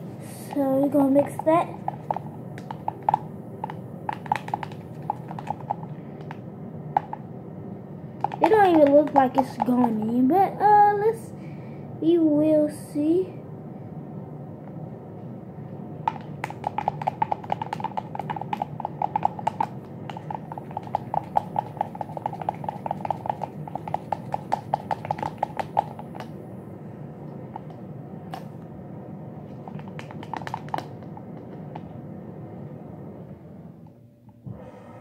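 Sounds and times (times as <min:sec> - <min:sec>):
toothbrush handle clacking in plastic cup: 0:01.2 - 0:05.8, 0:16.1 - 0:26.3, 0:29.6 - 0:30.9.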